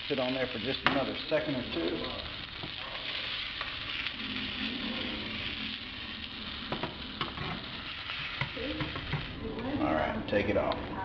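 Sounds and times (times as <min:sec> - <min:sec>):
fish sizzling in butter: 0:00.0 - 0:11.0.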